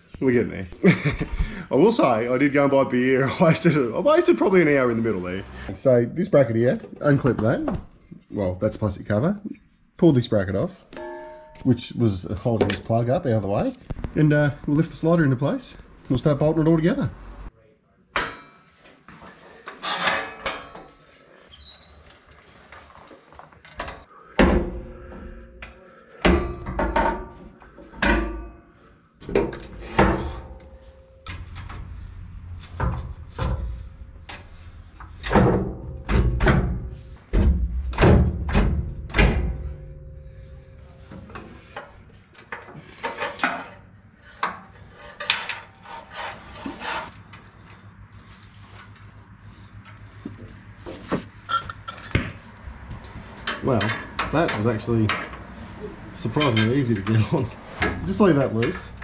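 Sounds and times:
metal clunks and scrapes: 0:10.9 - 0:11.7, 0:18.2 - 0:21.3, 0:22.1 - 0:47.6, 0:49.7 - 0:59.0.

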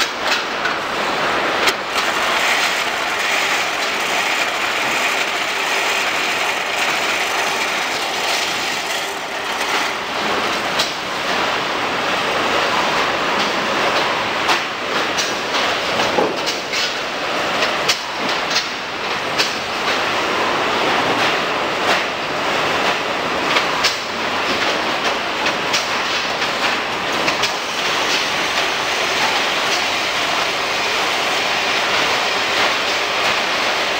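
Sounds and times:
conveyor machine noise: 0:00.0 - 0:33.9
boxes clattering over rollers: 0:02.0 - 0:10.9.

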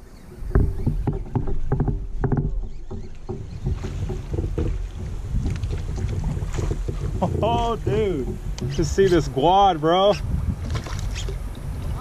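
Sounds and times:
low rumble of water and wind: 0:00.0 - 0:12.0
knocks on plastic kayak hull: 0:00.3 - 0:09.6.

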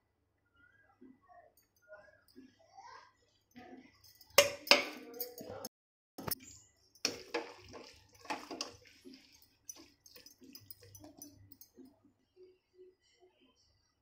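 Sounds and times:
pasta squishing: 0:06.2 - 0:11.4
metal spatula scraping pan: 0:07.0 - 0:11.2.

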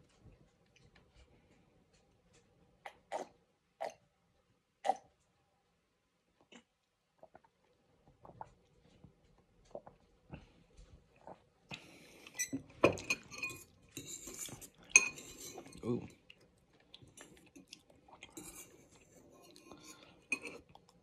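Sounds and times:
metal spoon clinking on ceramic bowl: 0:12.4 - 0:15.8, 0:18.4 - 0:20.6.

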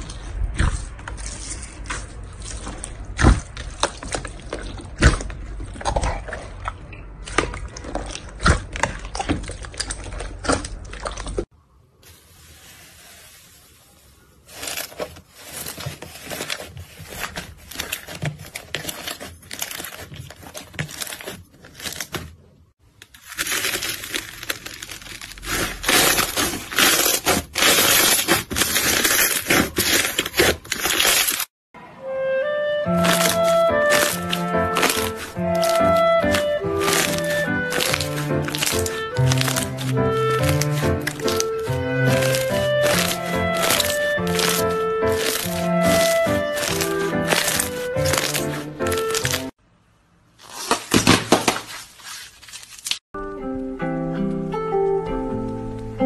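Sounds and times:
slime squished with beads: 0:22.9 - 0:31.5, 0:32.9 - 0:49.6
slime stretched sticky crackles: 0:33.0 - 0:49.5.

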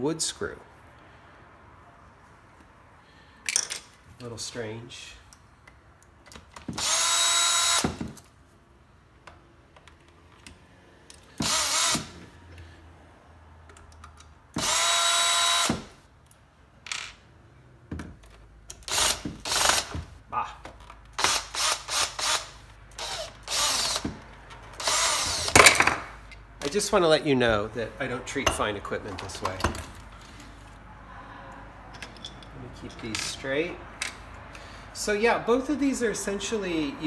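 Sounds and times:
cordless drill motor whine: 0:23.0 - 0:24.1.

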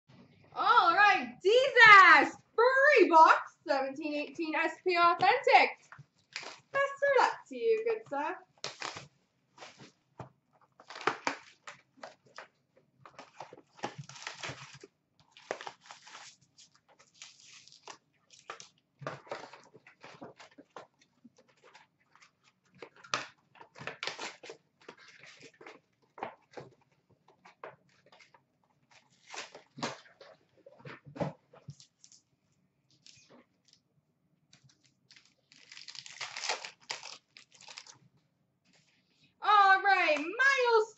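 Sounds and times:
foil packs crinkling: 0:06.2 - 0:06.8, 0:08.5 - 0:10.0, 0:13.1 - 0:22.4, 0:34.6 - 0:38.0.

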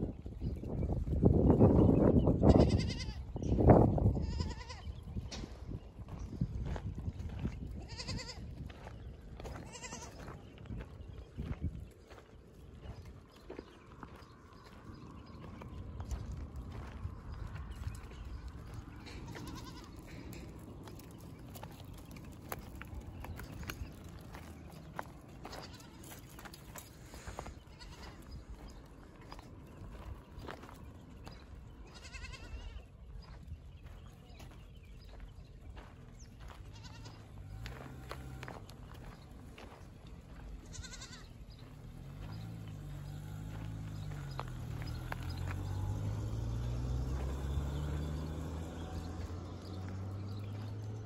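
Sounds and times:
hooves clicking on stony ground: 0:00.0 - 0:51.0
goats bleating: 0:02.4 - 0:03.3, 0:04.1 - 0:04.9, 0:07.8 - 0:08.5, 0:09.5 - 0:10.3, 0:19.0 - 0:21.2, 0:25.4 - 0:26.4, 0:27.2 - 0:28.3, 0:31.8 - 0:32.9, 0:36.7 - 0:37.4, 0:40.6 - 0:41.4.

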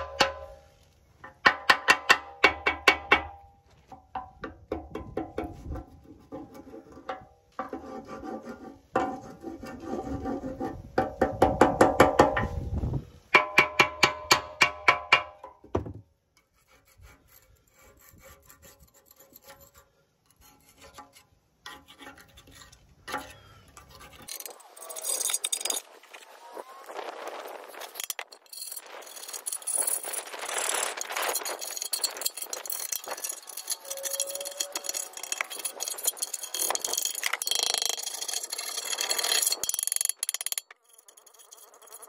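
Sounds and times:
scraping by hand: 0:05.4 - 0:11.0, 0:16.4 - 0:42.0.

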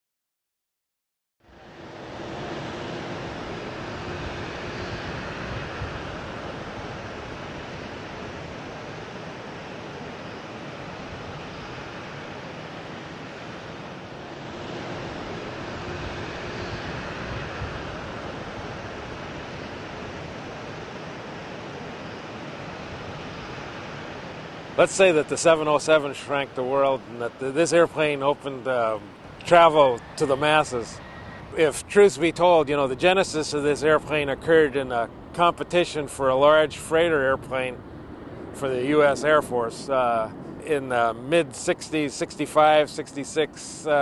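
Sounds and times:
faint hum: 0:01.4 - 0:44.0
jet engines rushing: 0:01.5 - 0:44.0.

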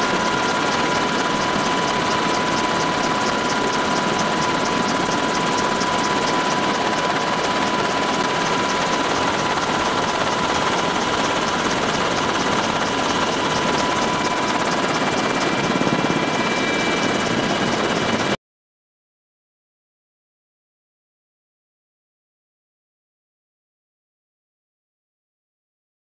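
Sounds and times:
helicopter rotor and turbine drone: 0:00.0 - 0:18.4.

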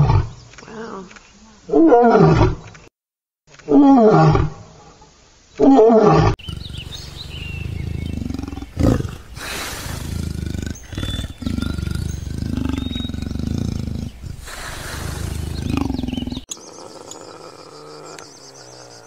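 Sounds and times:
leopard low calls: 0:05.6 - 0:19.0
lion roaring: 0:05.7 - 0:19.0.

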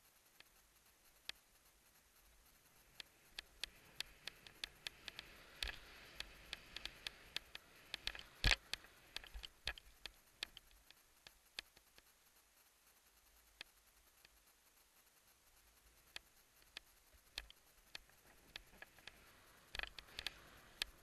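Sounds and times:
skis sliding through snow: 0:03.0 - 0:09.7, 0:18.1 - 0:21.0
ski gear clicks and knocks: 0:03.0 - 0:11.0, 0:18.2 - 0:21.0.

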